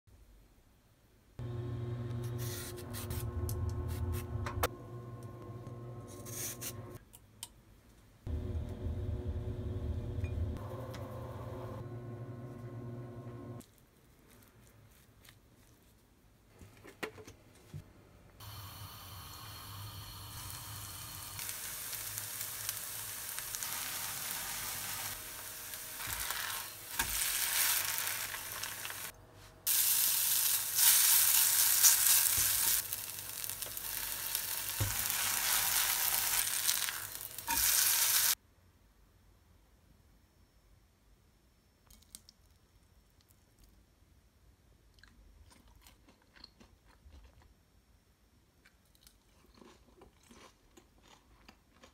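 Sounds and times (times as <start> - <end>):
pancake sizzling in hot oil: 18.4 - 29.1, 29.7 - 38.4.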